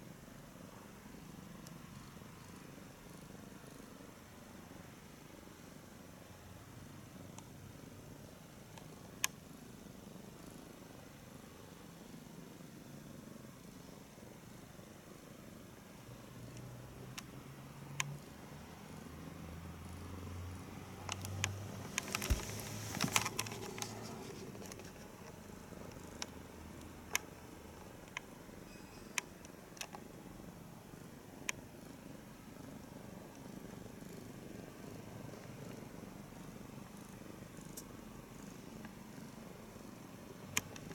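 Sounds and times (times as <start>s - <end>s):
cat purring: 0.0s - 40.9s
crackling clicks: 16.4s - 18.5s, 20.9s - 28.4s, 29.2s - 30.2s, 40.4s - 40.9s
sharp clicks: 21.0s - 27.3s.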